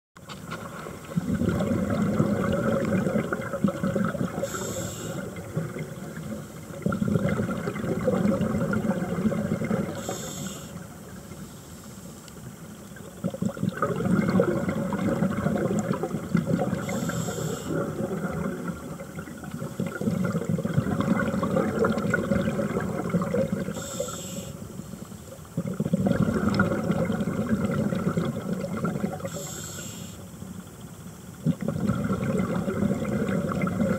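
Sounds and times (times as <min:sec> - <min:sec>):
rumbling bubbles underwater: 0:00.4 - 0:11.4, 0:12.5 - 0:24.0, 0:25.4 - 0:29.4, 0:31.3 - 0:33.9
regulator inhalation hiss: 0:04.4 - 0:05.3, 0:10.0 - 0:12.3, 0:16.8 - 0:17.8, 0:23.7 - 0:25.3, 0:29.3 - 0:30.4.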